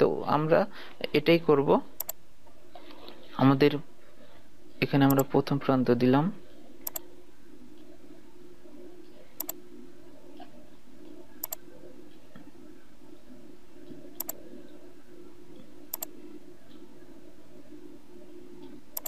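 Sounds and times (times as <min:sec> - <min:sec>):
steady low hum: 0:00.0 - 0:19.0
computer mouse clicking: 0:05.1 - 0:05.3, 0:06.8 - 0:07.1, 0:09.4 - 0:09.6, 0:11.4 - 0:11.6, 0:13.9 - 0:14.4, 0:15.9 - 0:16.1, 0:18.6 - 0:19.0.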